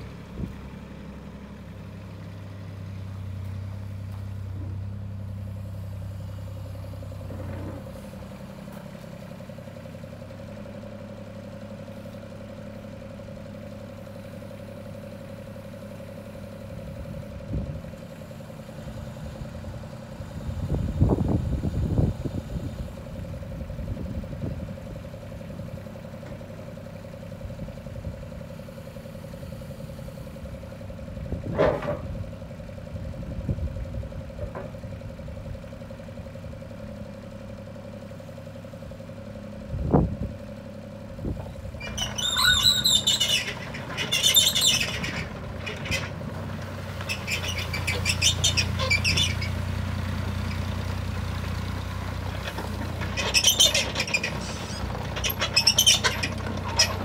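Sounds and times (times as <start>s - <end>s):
excavator engine hum: 0.0s - 57.0s
rapid high-pitched squeaking: 41.8s - 46.1s, 47.1s - 49.6s, 53.0s - 57.0s.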